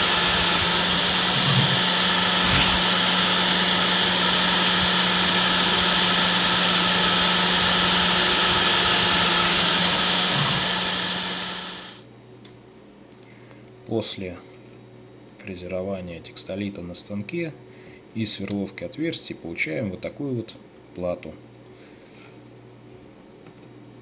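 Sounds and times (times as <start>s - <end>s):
router spindle milling: 0.0s - 12.0s
steady machine hum: 0.0s - 12.0s.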